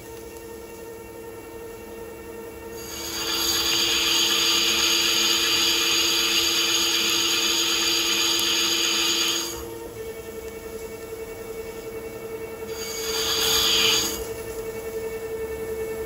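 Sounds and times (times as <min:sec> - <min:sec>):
lathe low hum: 0:00.0 - 0:16.0
lathe cutting squeal: 0:02.8 - 0:09.6, 0:12.7 - 0:14.2.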